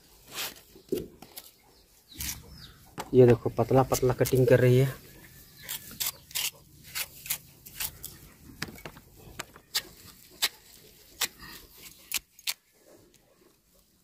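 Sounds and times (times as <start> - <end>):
sickle blade scraping tuber skin: 0.2 - 2.6, 3.7 - 8.4, 9.6 - 12.8.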